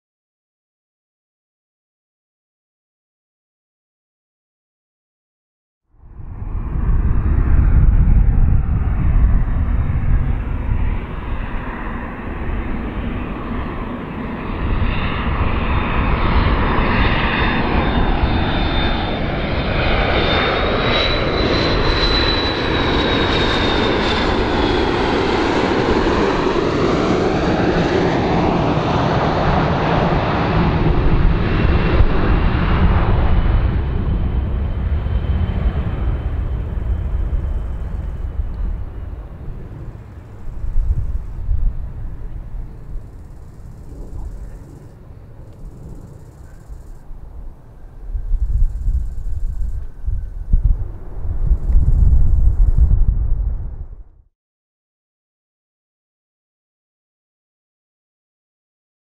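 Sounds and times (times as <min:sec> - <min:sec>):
high jet engine whine: 0:05.9 - 0:54.3
jet airliner rumble: 0:05.9 - 0:54.3.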